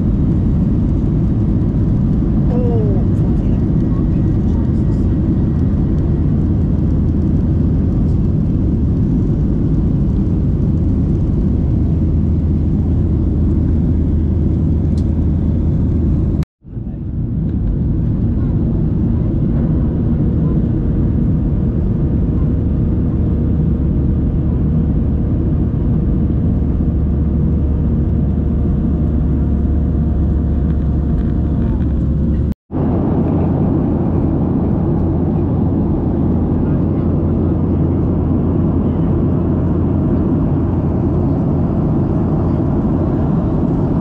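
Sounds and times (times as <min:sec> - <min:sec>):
jet engine roar in cabin: 0:00.0 - 0:44.0
low hum: 0:00.0 - 0:44.0.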